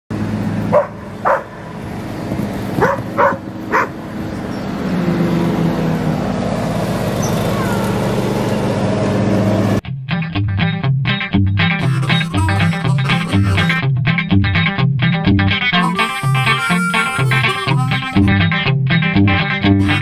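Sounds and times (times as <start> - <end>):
vehicle engine hum: 0.1 - 9.8, 15.8 - 18.4
dogs barking: 0.7 - 1.8, 2.7 - 4.0
electric guitar music: 9.8 - 20.0.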